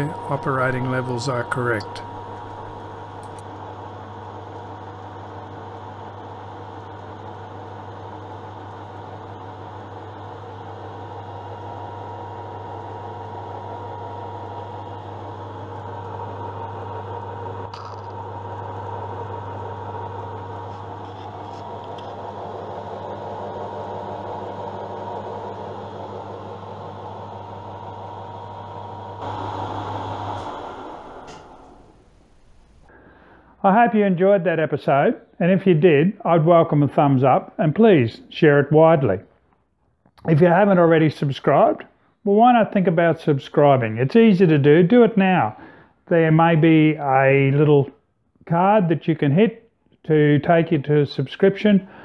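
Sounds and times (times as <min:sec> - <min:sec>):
lathe running with gear hum: 0:00.0 - 0:32.0.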